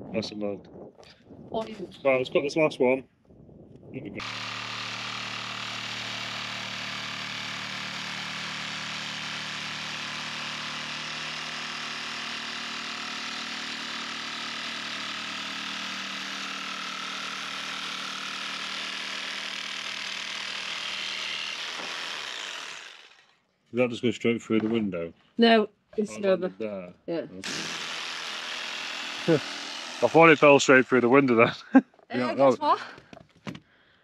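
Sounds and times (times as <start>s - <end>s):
electric saw cutting wood: 4.2s - 23.4s, 27.4s - 31.5s.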